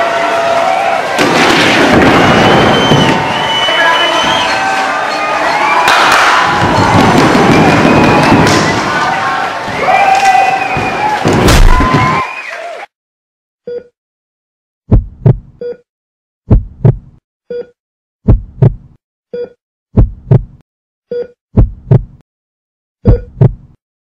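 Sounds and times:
heartbeat thumps: 0:14.9 - 0:15.6, 0:16.5 - 0:17.2, 0:18.2 - 0:19.0, 0:19.9 - 0:20.6, 0:21.5 - 0:22.2, 0:23.0 - 0:23.8.

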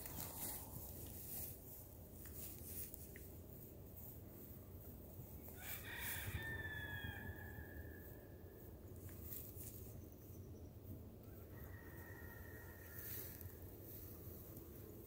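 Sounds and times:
rooster crowing: 0:05.6 - 0:08.4, 0:11.2 - 0:13.7.

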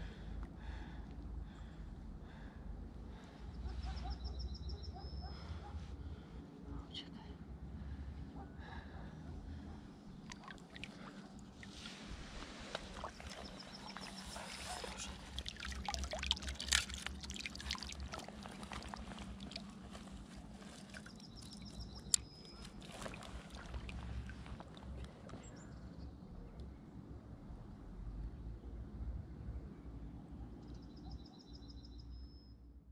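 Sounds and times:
water dripping: 0:10.2 - 0:11.8, 0:12.7 - 0:25.5
river water splashing: 0:10.2 - 0:25.5.

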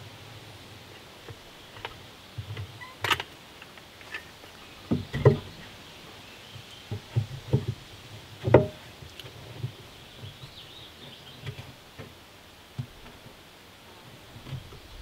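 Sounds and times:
board knocking against wood wall: 0:08.5 - 0:08.8.

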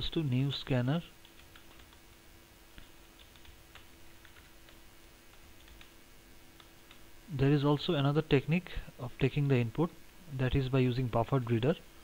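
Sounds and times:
low steady hum: 0:00.0 - 0:12.0
faint keyboard typing: 0:00.6 - 0:07.1.

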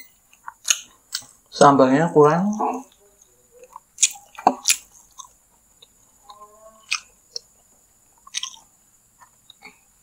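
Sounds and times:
wet chewing smacks and clicks: 0:06.9 - 0:09.8.

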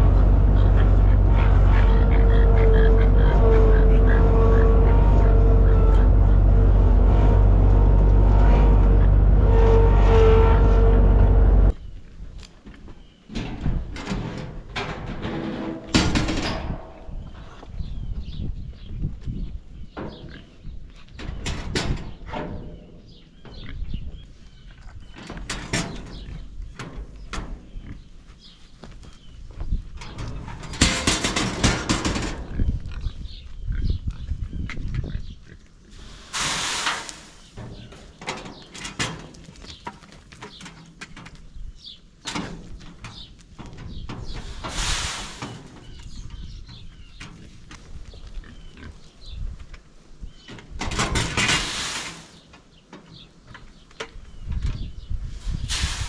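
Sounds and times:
pigs grunting: 0:00.0 - 0:11.5
pig squealing: 0:00.4 - 0:06.4.

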